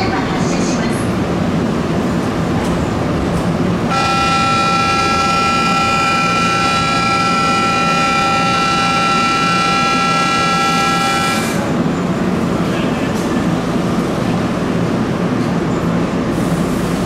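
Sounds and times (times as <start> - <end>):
station departure bell ringing: 3.9 - 11.5.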